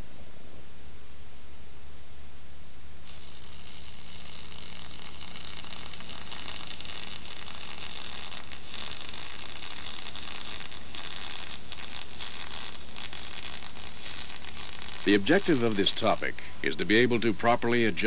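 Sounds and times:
low mains hum: 0.0s - 18.0s
tape hiss: 0.0s - 18.0s.

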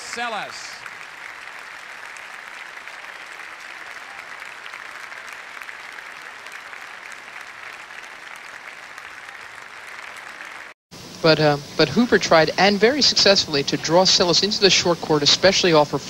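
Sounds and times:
stadium crowd applauding: 0.0s - 10.8s.

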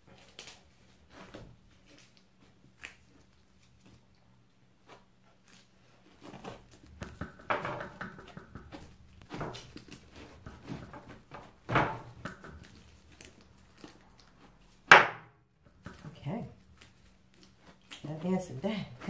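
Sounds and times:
knife cutting fruit rind: 4.8s - 19.0s.

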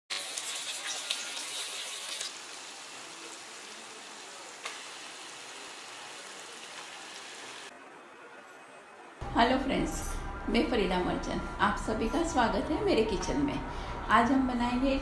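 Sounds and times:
hot oil sizzling: 0.1s - 7.7s.

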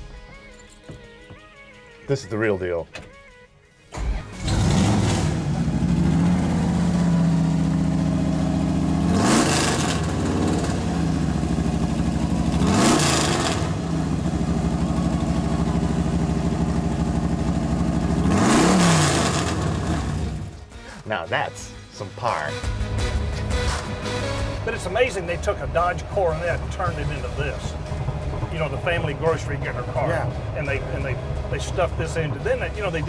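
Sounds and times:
drag car engine revving: 4.3s - 20.6s.

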